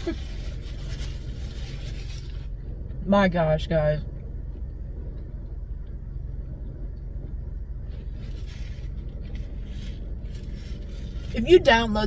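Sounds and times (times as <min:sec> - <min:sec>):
paper napkin rustling: 0:00.0 - 0:02.5, 0:07.9 - 0:12.0
car idling hum: 0:00.0 - 0:12.0.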